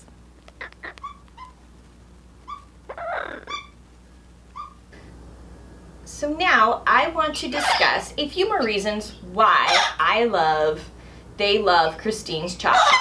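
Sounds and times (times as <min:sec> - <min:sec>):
parrot chirps and clicks: 0:00.0 - 0:01.6, 0:02.4 - 0:03.8, 0:04.5 - 0:04.8
parrot rough call: 0:00.6 - 0:01.6, 0:02.4 - 0:03.8.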